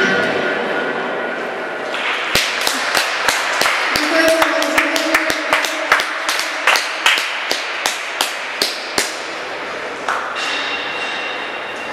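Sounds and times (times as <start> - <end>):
sharp close claps: 1.9 - 9.3, 10.0 - 10.6
audience applauding: 2.0 - 9.2.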